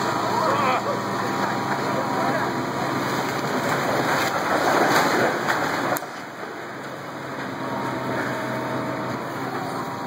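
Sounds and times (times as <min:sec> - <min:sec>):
falling rubble crashing: 0:03.5 - 0:06.0.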